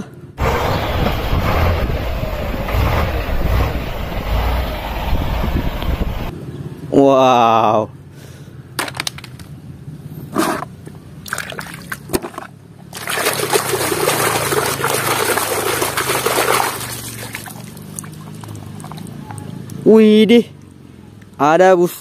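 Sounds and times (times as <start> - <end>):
plastic toys knocking: 8.8 - 9.5
water splashing and sloshing: 11.2 - 19.8
water dripping: 13.0 - 19.8.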